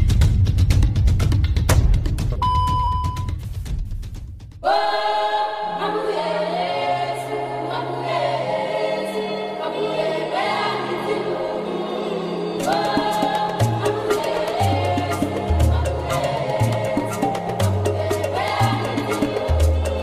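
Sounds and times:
choir singing sustained chords: 4.6s - 20.0s.

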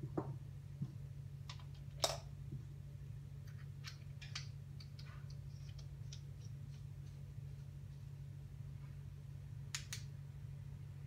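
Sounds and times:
low steady hum: 0.0s - 11.0s
metal parts clicking and scraping: 3.5s - 6.8s.

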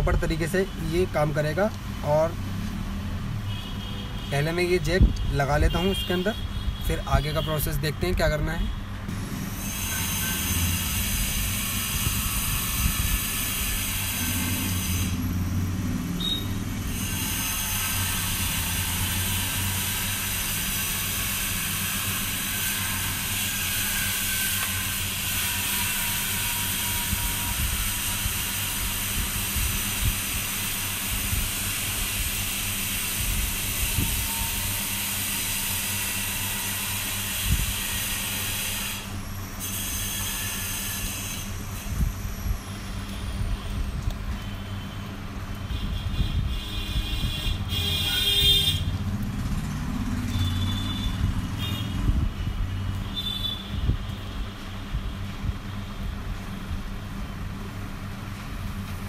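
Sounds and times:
hot-air station blowing hiss: 9.1s - 43.4s.

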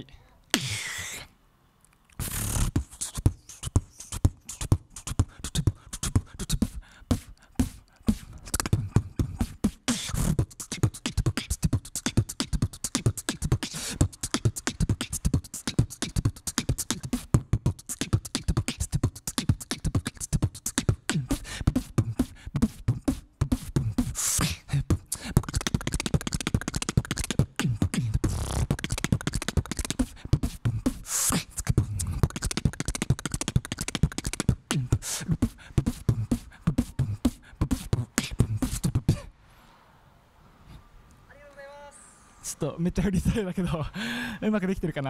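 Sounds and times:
person beatboxing into microphone: 0.0s - 1.3s, 2.1s - 39.3s.

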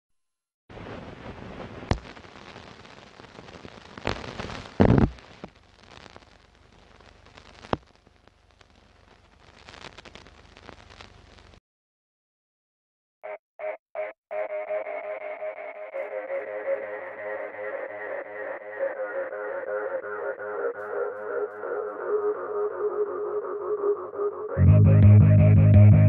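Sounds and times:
old film crackle and hiss: 0.7s - 11.6s
sharp pops: 1.8s - 6.3s, 7.4s - 7.9s.

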